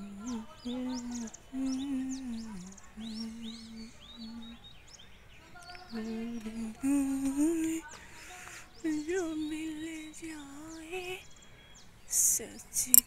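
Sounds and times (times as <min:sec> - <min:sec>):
woman humming: 0:00.0 - 0:04.6, 0:05.9 - 0:07.9
birds chirping: 0:00.0 - 0:13.0.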